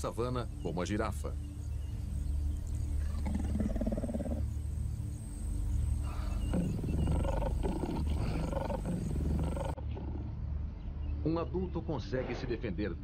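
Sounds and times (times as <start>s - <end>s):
low background music: 0.0s - 13.0s
lion growling: 3.0s - 4.5s, 6.0s - 10.4s.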